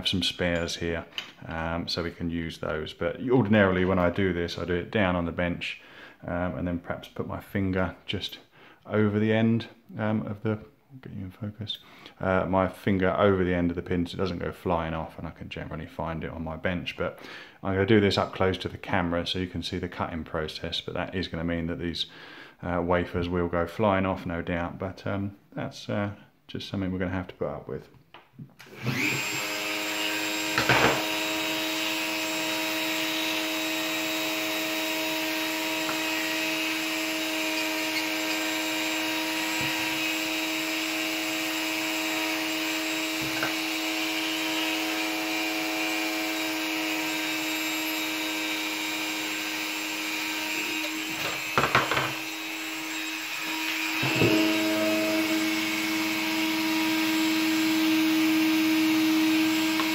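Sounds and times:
electric rotary tool running: 28.7 - 59.9.

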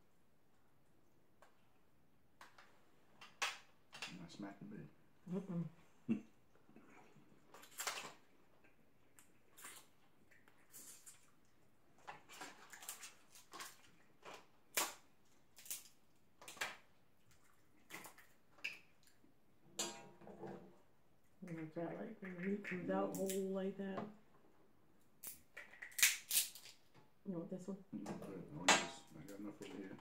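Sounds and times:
crab shells cracking: 12.4 - 16.8, 25.2 - 26.9.

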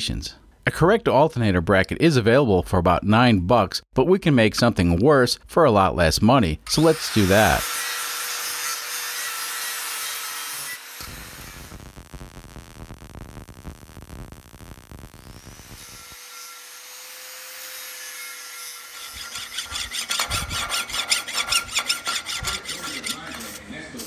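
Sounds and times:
angle grinder on steel: 6.7 - 11.8, 15.2 - 24.0
welder crackling: 6.7 - 23.7
rhythmic scraping on metal: 18.4 - 24.0.

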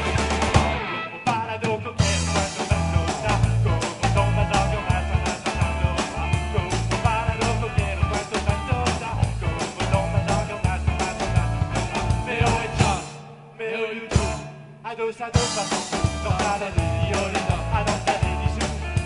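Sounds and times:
live rock band playing: 0.0 - 19.0.

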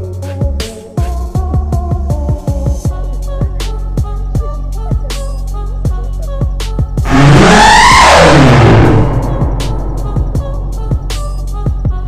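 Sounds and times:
steady bass: 1.2 - 12.0
pitch-sliding kick drum: 7.0 - 12.0.

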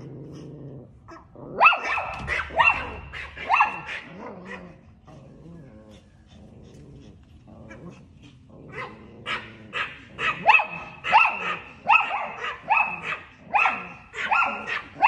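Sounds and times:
small dog yapping: 1.1 - 4.8, 8.7 - 15.0.

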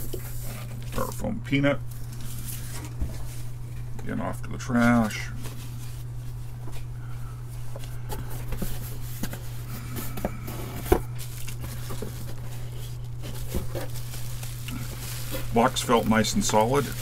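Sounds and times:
cardboard box and bubble wrap rustling: 1.9 - 3.6, 7.5 - 17.0.

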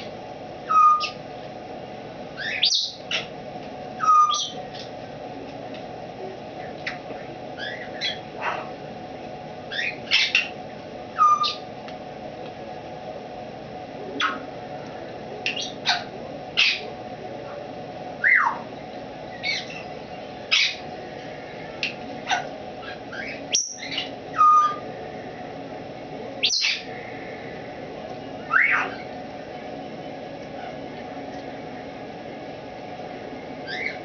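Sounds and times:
parrot whistling and chirping: 0.6 - 1.2, 2.4 - 3.2, 4.0 - 4.6, 9.7 - 10.5, 11.2 - 11.6, 18.2 - 18.6, 19.4 - 19.9, 22.3 - 24.8, 26.4 - 26.9, 28.4 - 29.0, 33.6 - 34.0.

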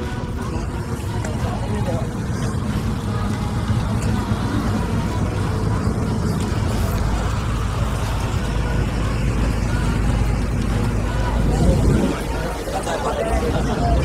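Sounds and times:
faint voices: 0.0 - 14.0
road traffic rumble: 0.0 - 14.0
wind on microphone: 11.3 - 12.6.

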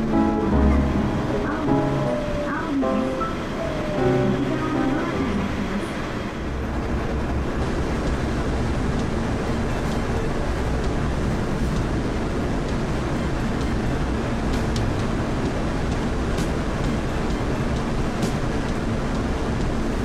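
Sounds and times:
train tyres rumbling: 5.0 - 20.0.

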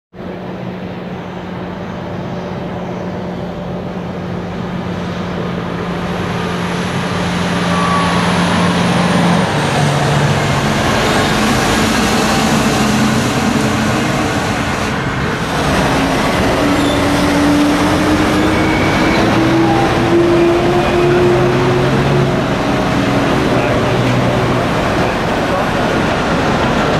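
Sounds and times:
truck diesel engine driving past: 0.4 - 26.9.

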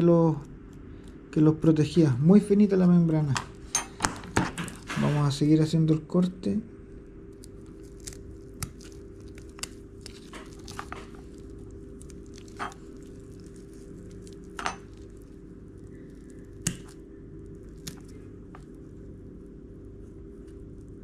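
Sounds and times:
steady low hum: 0.0 - 21.0
wet tearing: 7.3 - 18.8.

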